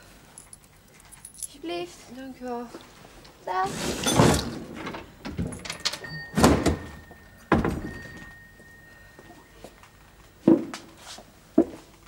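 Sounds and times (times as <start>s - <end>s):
cash register clunks: 4.0s - 8.5s
high bell ring: 5.6s - 9.8s.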